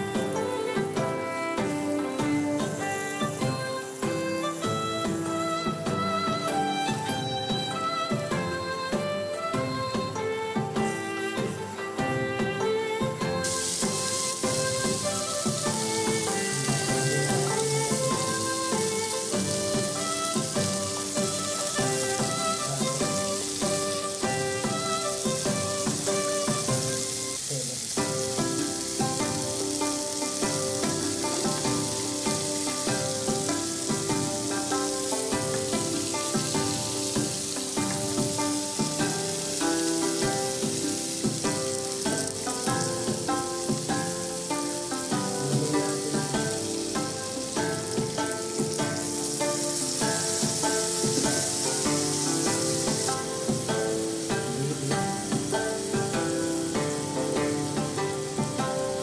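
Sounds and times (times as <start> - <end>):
food sizzling in a frying pan: 0.0 - 59.0
instrumental background music: 0.0 - 59.0.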